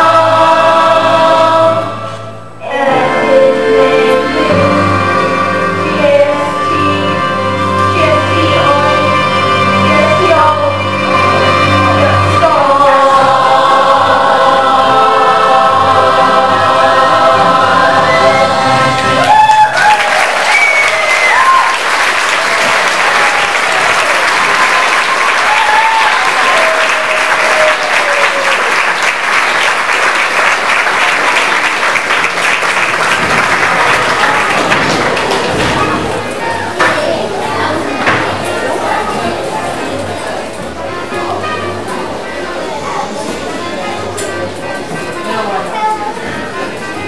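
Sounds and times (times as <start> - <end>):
children's choir singing: 0.0 - 19.5, 20.2 - 47.0
instrumental accompaniment: 0.0 - 19.5
audience applause: 18.7 - 36.4
whoops and cheers: 19.2 - 28.8.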